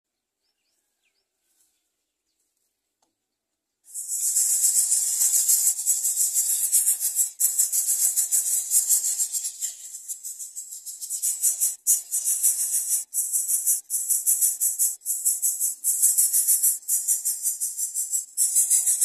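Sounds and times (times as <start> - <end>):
faint chirps: 3.9 - 19.0.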